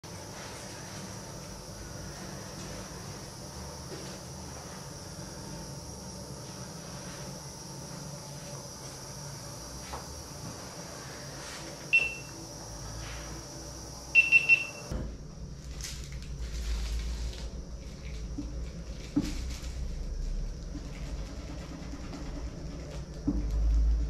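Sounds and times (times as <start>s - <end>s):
high electronic beeps: 11.9s - 12.3s, 14.2s - 14.9s.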